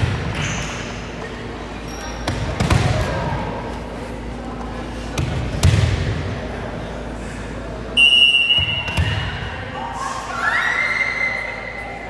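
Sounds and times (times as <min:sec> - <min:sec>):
voices in hall: 0:00.0 - 0:12.0
hand slapping volleyball: 0:05.1 - 0:06.1, 0:08.6 - 0:09.4.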